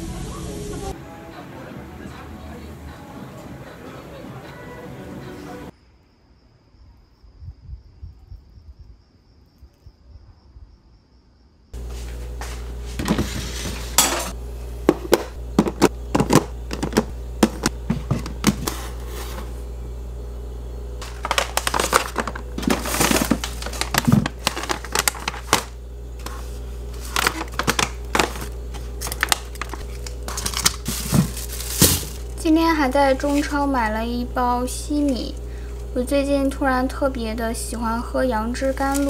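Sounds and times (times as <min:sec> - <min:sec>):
steady low hum: 0:11.7 - 0:39.0
items clattering on hard surface: 0:13.0 - 0:19.5, 0:21.0 - 0:32.3
plastic packaging crinkling: 0:21.0 - 0:32.5, 0:38.4 - 0:39.0.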